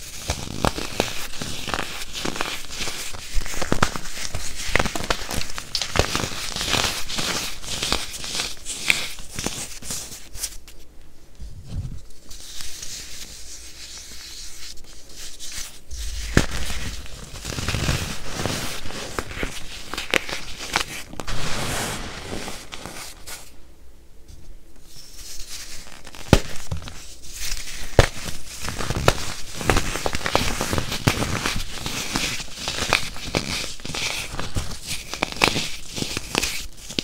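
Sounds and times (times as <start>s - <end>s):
baking soda crunching in hands: 25.8s - 37.0s.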